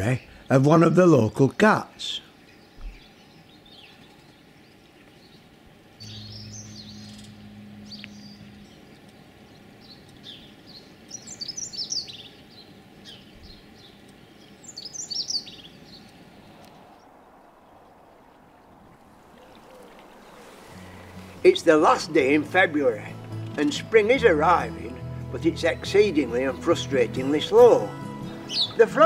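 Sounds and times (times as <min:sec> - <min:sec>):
songbirds chirping: 0:00.0 - 0:29.0
low steady hum: 0:05.6 - 0:14.8.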